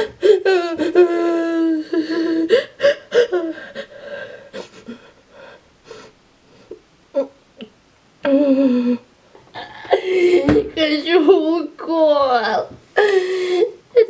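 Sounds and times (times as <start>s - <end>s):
girl whimpering: 0.0s - 5.5s, 7.1s - 7.4s, 8.2s - 10.6s
girl gasping and sniffing: 9.6s - 10.6s, 13.0s - 13.8s.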